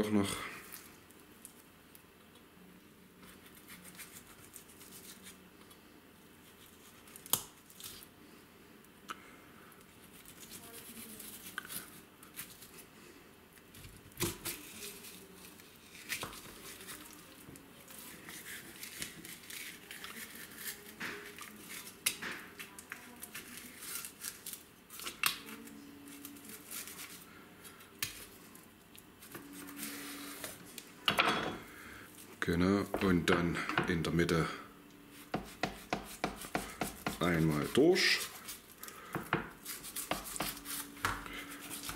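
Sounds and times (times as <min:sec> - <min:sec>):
knife scraping on bone and board: 0:39.6 - 0:41.9.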